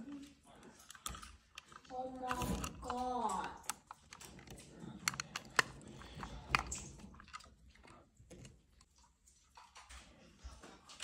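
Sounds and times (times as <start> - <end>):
pliers and wires clicking: 0.8 - 7.5.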